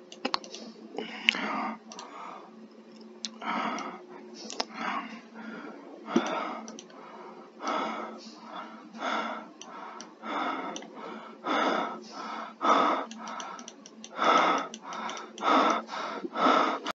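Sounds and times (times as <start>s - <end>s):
person breathing heavily: 0.7s - 2.6s, 3.3s - 17.0s
faint clicks: 1.3s - 2.1s, 6.2s - 7.0s, 13.0s - 15.8s.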